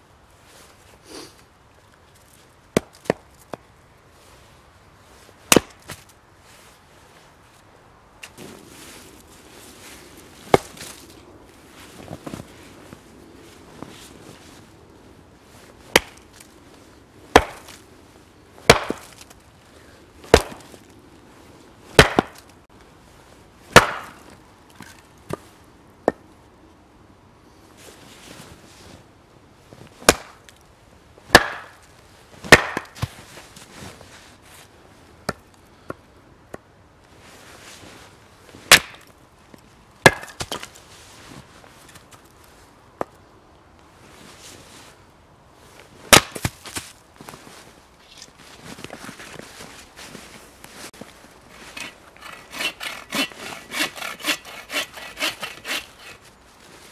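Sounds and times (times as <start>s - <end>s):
hatchet chopping log on block: 2.8s - 3.3s, 5.5s - 6.0s, 15.9s - 16.2s, 17.3s - 17.8s, 18.7s - 19.2s, 20.3s - 20.7s, 22.0s - 22.4s, 23.7s - 24.3s, 30.1s - 30.4s, 31.3s - 31.8s, 32.5s - 33.1s, 38.7s - 39.1s, 40.0s - 40.7s, 46.1s - 46.8s, 51.7s - 56.2s.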